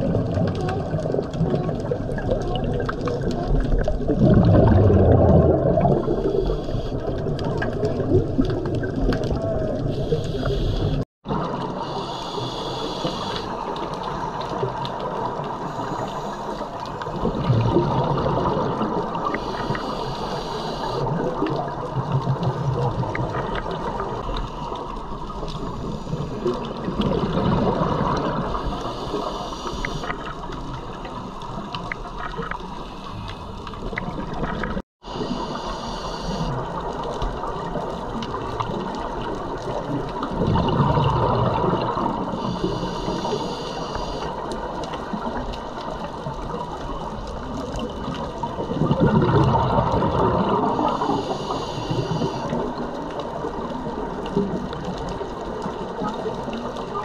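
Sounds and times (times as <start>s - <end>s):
bubbling exhalations: 0.0s - 11.9s, 13.0s - 24.3s, 25.0s - 31.0s, 36.1s - 43.6s, 47.4s - 52.9s
regulator hissing inhalations: 11.8s - 13.6s, 19.4s - 21.0s, 42.4s - 44.3s, 51.0s - 52.5s.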